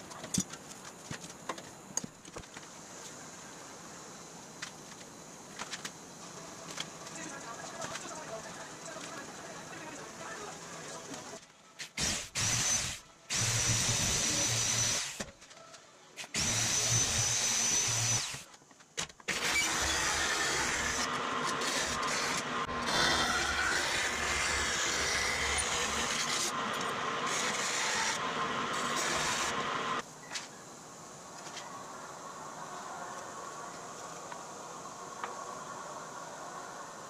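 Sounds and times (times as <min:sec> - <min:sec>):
bandsaw cutting metal: 0:11.8 - 0:15.2, 0:16.2 - 0:18.4, 0:19.3 - 0:30.0
electric metal shear whining: 0:16.2 - 0:18.4, 0:19.3 - 0:30.0.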